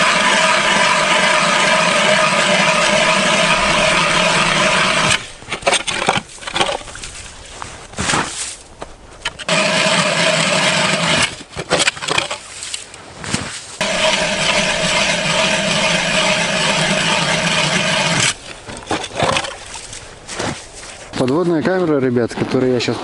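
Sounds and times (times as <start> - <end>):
ice auger motor drilling: 0.0 - 7.0, 9.2 - 12.5, 13.8 - 20.6
knocks and scrapes: 1.6 - 10.1, 10.8 - 23.0.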